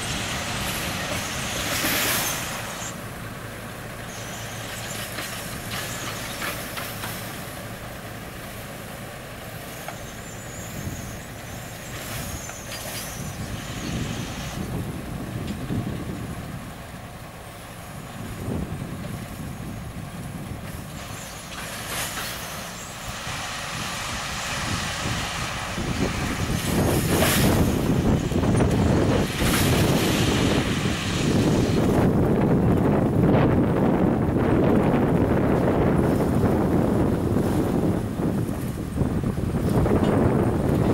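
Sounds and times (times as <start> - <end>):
diesel locomotive engines rumbling: 0.0 - 40.9.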